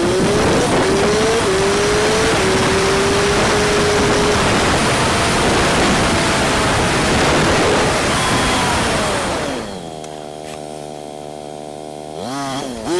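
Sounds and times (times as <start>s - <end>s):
rush of wind: 0.0s - 10.1s
motorcycle engine upshifting: 0.0s - 12.9s.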